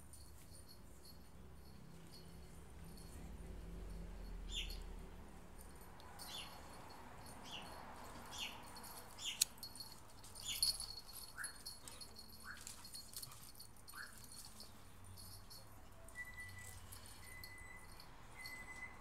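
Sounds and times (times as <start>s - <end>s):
dogs yipping: 10.4s - 14.6s.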